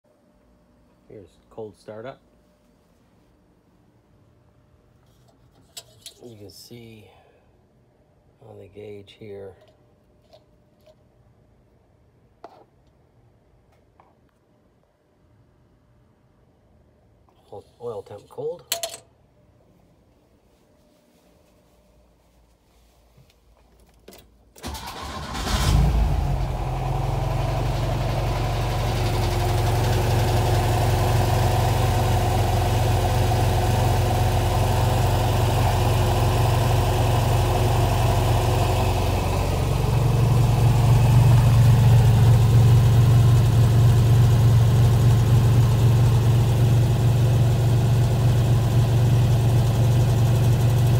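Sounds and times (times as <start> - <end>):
car engine idling: 24.8 - 50.9.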